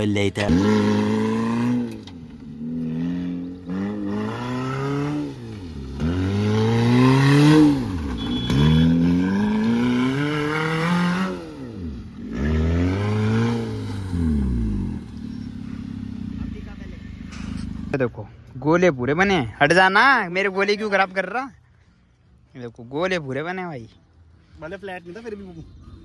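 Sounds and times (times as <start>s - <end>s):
car engine revving: 0.0s - 18.4s.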